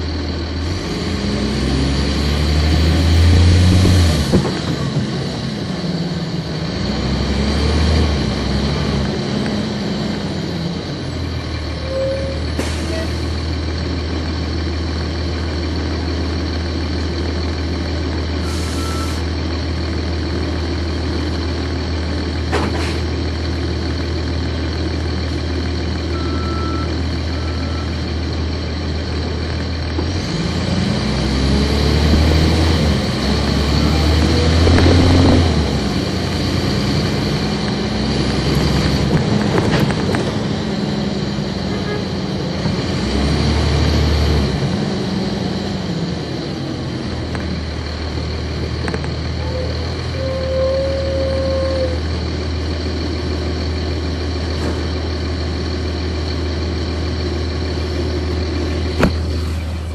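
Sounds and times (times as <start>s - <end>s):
bus diesel engine: 0.0s - 59.9s
short hisses: 18.5s - 19.2s.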